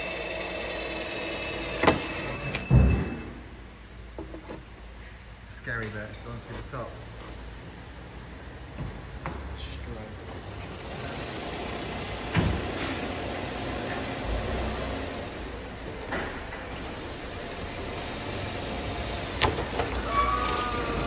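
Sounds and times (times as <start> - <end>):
power drill cutting a hole: 0.0 - 2.6
garage noise: 0.0 - 21.0.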